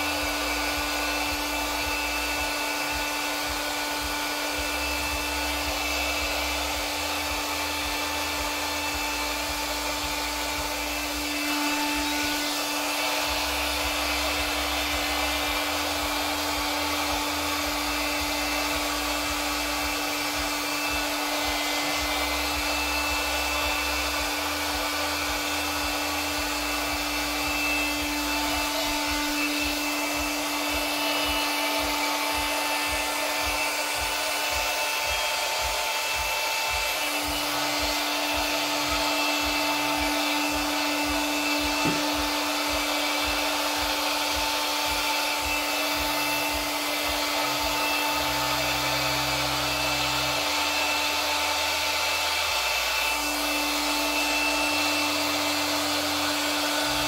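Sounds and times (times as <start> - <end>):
electric air blower running: 0.0 - 57.0.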